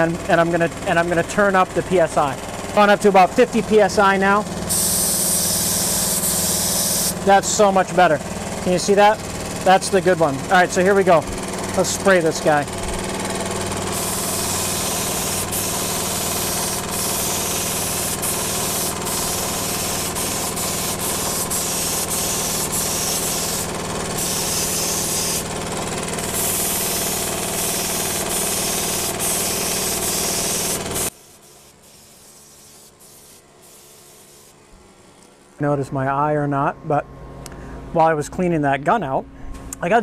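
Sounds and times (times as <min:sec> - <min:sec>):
low machine hum: 0:00.0 - 0:40.0
spray gun air hiss: 0:01.8 - 0:34.7.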